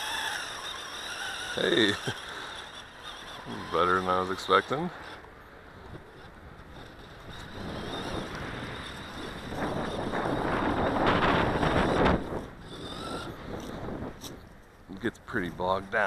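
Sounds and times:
wind buffeting microphone: 5.7 - 16.0.

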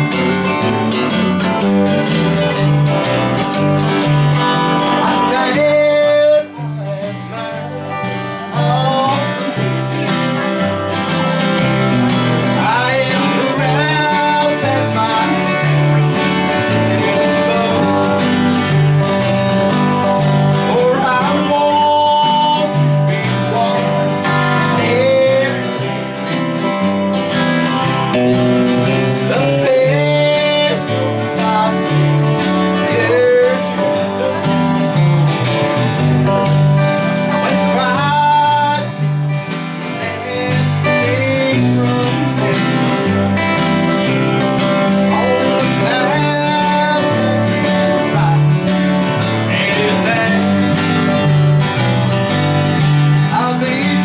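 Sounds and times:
acoustic guitar: 0.0 - 54.0
man singing gospel song: 4.7 - 10.4, 12.4 - 16.0, 16.9 - 18.2, 20.6 - 25.8, 29.0 - 34.4, 37.2 - 39.2, 39.8 - 43.2, 45.0 - 48.6, 49.3 - 50.8, 53.3 - 54.0.

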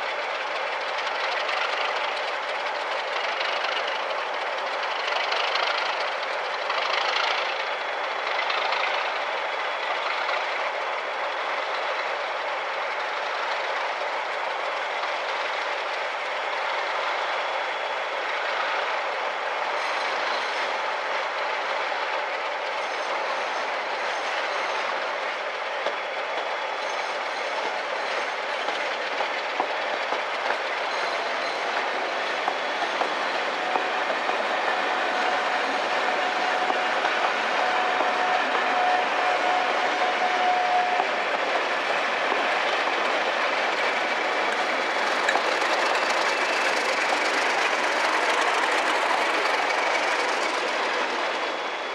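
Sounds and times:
passenger train rumbling past: 0.0 - 51.9
wheels clicking over rail joints: 41.0 - 51.5.

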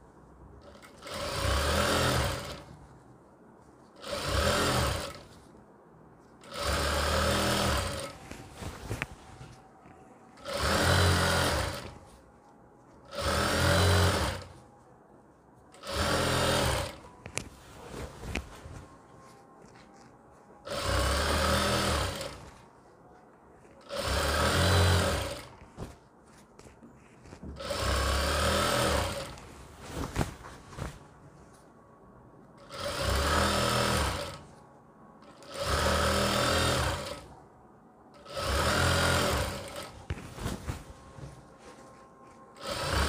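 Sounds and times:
sewing machine stitching: 0.6 - 2.7, 4.0 - 5.4, 6.4 - 8.2, 10.4 - 12.0, 13.0 - 14.6, 15.7 - 17.1, 20.6 - 22.6, 23.8 - 25.6, 27.6 - 29.4, 32.6 - 34.6, 35.2 - 37.3, 38.2 - 40.6, 42.6 - 43.0.

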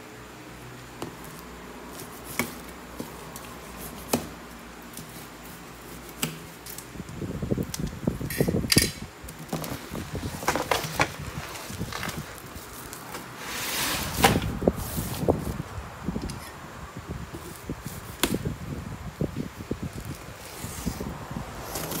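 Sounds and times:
crackling rustling plastic: 9.2 - 15.6, 19.4 - 22.0.

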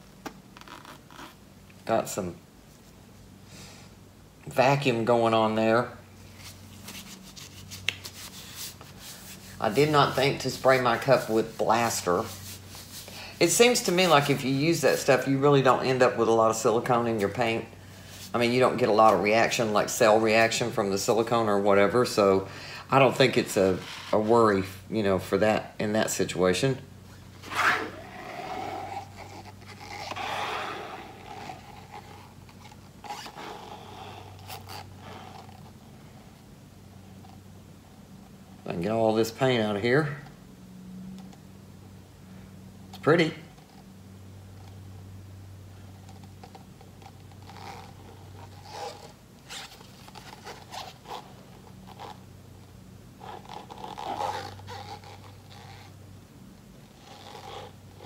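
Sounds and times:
steady low hum: 0.0 - 58.0
paint cup scraping canvas: 6.3 - 14.4, 27.3 - 35.7, 46.0 - 52.2.

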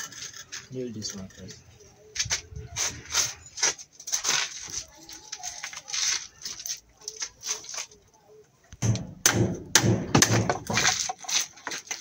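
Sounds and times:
hammer driving nails into timber: 8.8 - 11.1.

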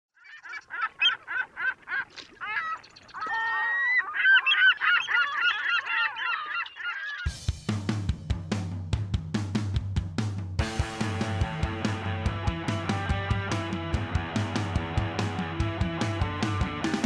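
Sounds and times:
geese honking: 0.2 - 7.4
music with drums: 7.3 - 17.0.

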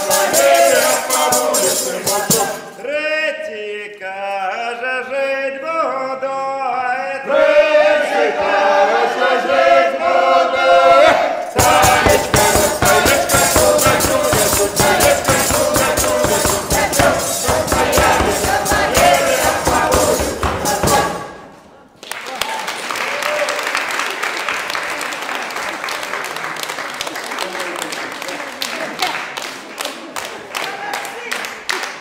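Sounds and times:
frame drum with jingles beating: 0.0 - 2.7, 11.6 - 21.3
folk group singing: 0.0 - 2.9, 7.1 - 21.8.

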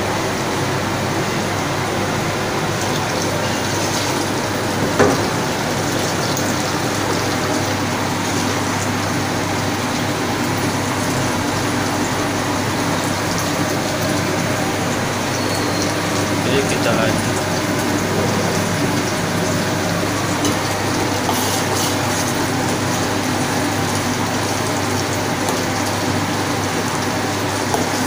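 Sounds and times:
spice paste sizzling in a wok: 20.8 - 23.8.

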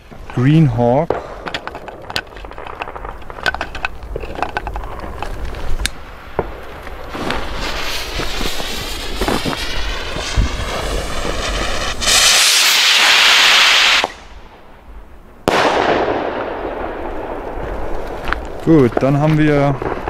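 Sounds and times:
firework fuse fizzing: 1.2 - 16.3
rocket launching with rushing hiss: 5.8 - 14.8, 15.4 - 17.5
firework bang: 5.9 - 14.6, 15.4 - 18.4.

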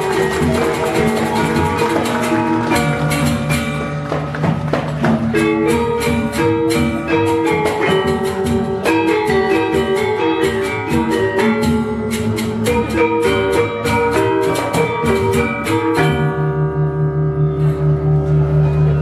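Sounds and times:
gamelan metallophones playing: 0.0 - 19.0.

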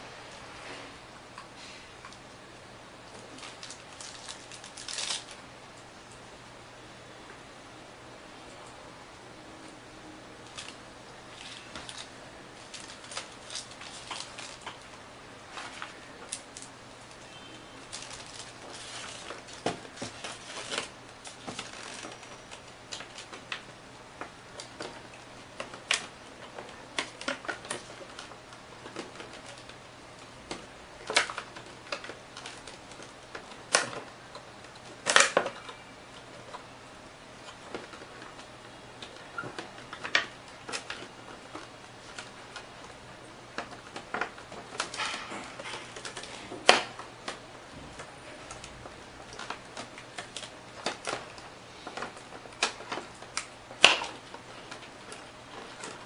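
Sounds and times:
plastic rustling and crackling: 3.0 - 5.5, 10.4 - 56.0
plastic snaps: 43.6 - 56.0.

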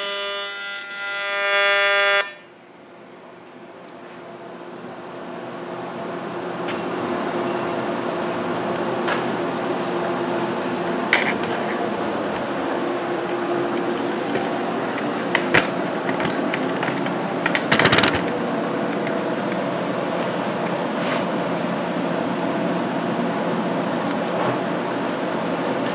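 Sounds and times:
arc welding buzzing hiss: 0.0 - 3.5.

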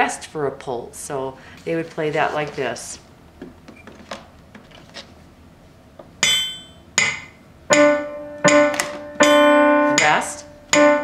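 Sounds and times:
digital piano single notes: 6.2 - 11.0.

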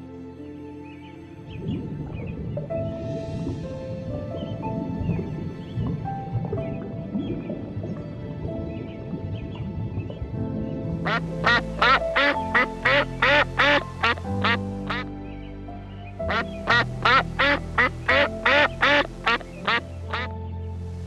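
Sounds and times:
soft piano music: 0.0 - 21.0
duck quacking: 11.1 - 15.0, 16.3 - 20.3.

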